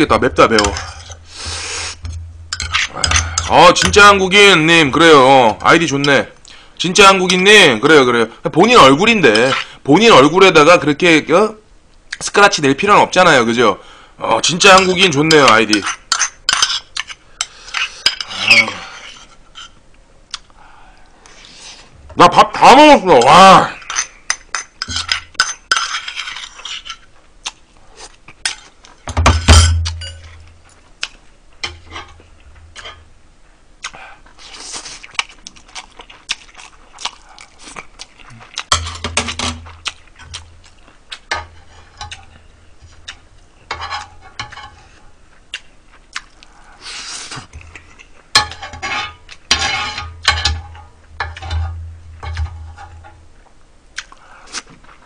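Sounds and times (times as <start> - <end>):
eating and handling noise: 0.0 - 13.3, 14.3 - 55.0
spoon scraping griddle pan: 0.5 - 4.0, 23.9 - 27.1, 41.3 - 43.1, 43.7 - 45.0, 48.3 - 53.2
metal spoon clinking on bowl: 29.5 - 30.4.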